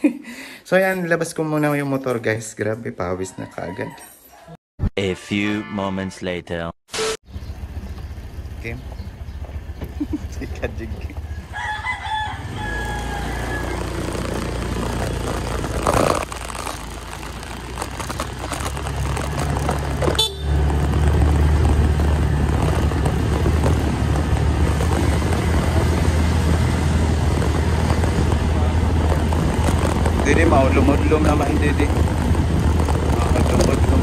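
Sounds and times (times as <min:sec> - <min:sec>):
motorcycle engine running: 0:07.3 - 0:34.0.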